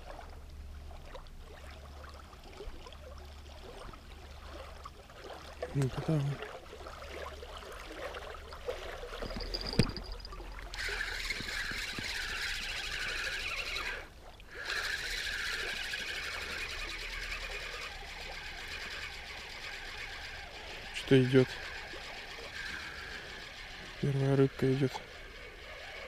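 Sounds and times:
fishing reel whirring: 8.9 - 26.0
reel click: 9.2 - 14.0.

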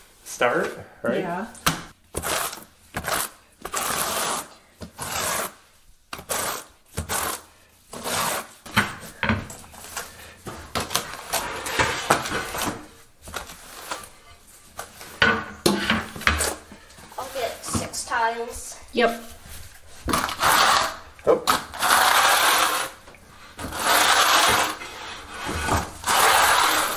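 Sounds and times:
trowel scraping tile mortar: 2.1 - 9.1, 10.9 - 12.8, 15.7 - 17.8, 20.1 - 26.9.

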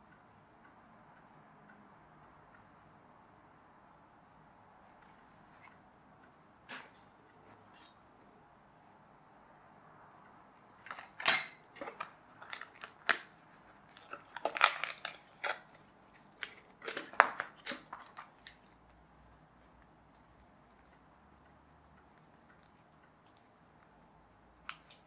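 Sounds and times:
card pieces snapping: 10.9 - 18.6, 24.6 - 25.0.

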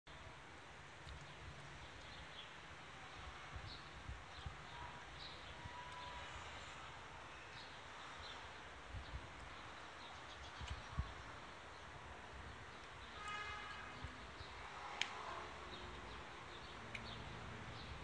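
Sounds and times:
wind bumps on microphone: 10.5 - 11.4.

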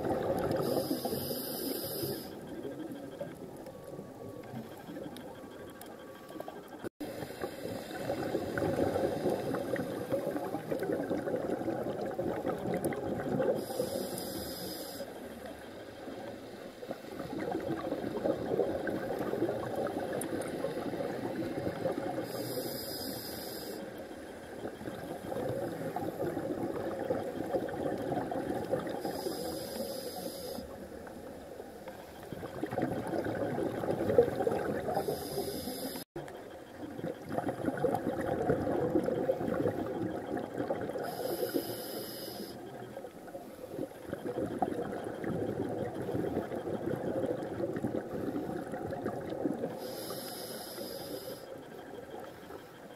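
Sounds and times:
underwater bubbles gurgling: 0.0 - 52.9
regulator hiss: 0.5 - 2.5, 13.5 - 15.4, 22.2 - 24.4, 29.0 - 30.8, 34.9 - 36.1, 41.0 - 42.7, 49.8 - 51.6.

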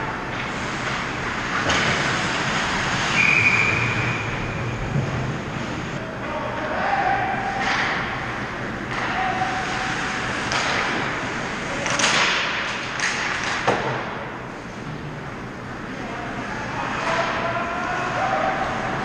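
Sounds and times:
hockey stick hitting puck: 0.3 - 2.8, 8.9 - 14.3.

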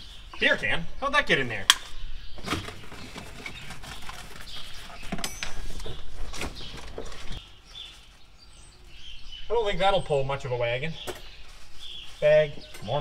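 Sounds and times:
rubbish rustling and knocking: 2.4 - 8.3.

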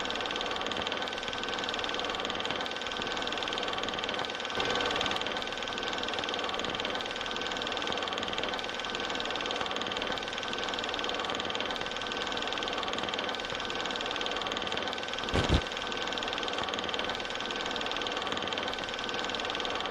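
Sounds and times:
mechanical hum with hiss: 15.3 - 15.7.

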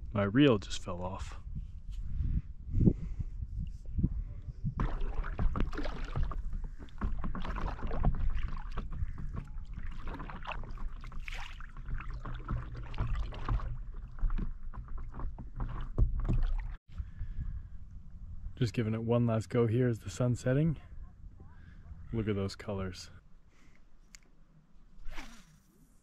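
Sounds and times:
wind rumble on microphone: 0.0 - 18.9
water splashing and sloshing: 4.6 - 16.8.

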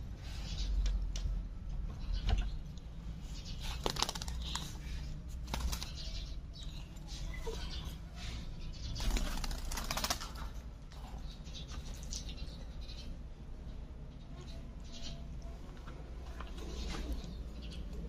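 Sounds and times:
bird wings fluttering: 3.6 - 4.8, 5.4 - 6.0, 9.0 - 10.5.

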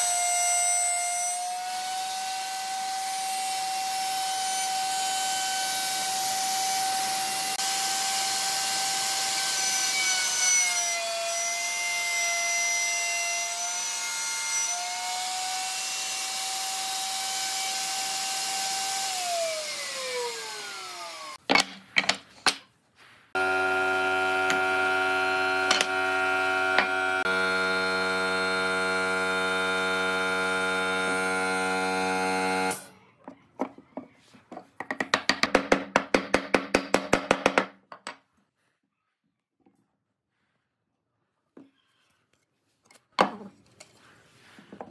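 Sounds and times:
wood router running: 1.6 - 11.7, 13.6 - 21.4, 23.4 - 32.9
machine hum: 23.4 - 32.9.

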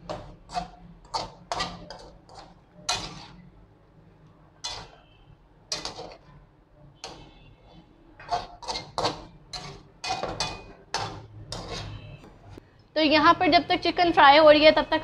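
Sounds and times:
metal spatula scraping a pan: 0.0 - 3.5, 4.6 - 6.4, 7.0 - 12.3.

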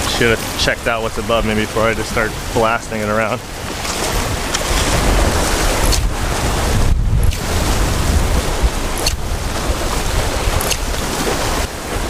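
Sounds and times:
ocean surf: 0.0 - 12.0
wind buffeting microphone: 0.0 - 12.0.

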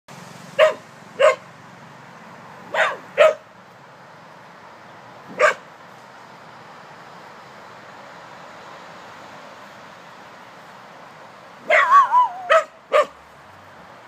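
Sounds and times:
small dog barking: 0.6 - 1.4, 2.7 - 3.4, 5.3 - 5.6, 11.6 - 13.2.

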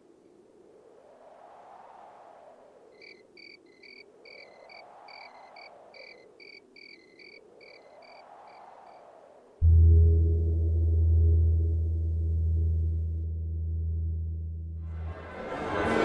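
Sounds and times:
crickets chirping: 1.6 - 9.6.

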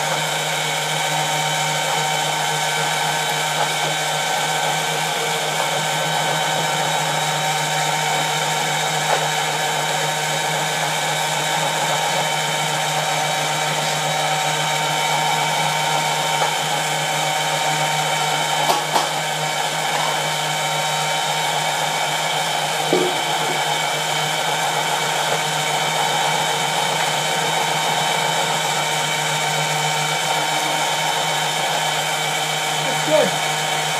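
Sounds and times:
strainer motor humming and whining: 0.0 - 33.9
brief knocks: 22.8 - 23.7.

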